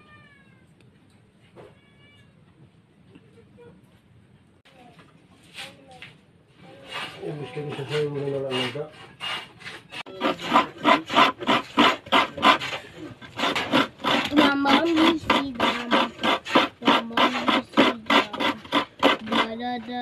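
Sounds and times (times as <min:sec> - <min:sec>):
hand scraping strokes: 0:06.6 - 0:20.0.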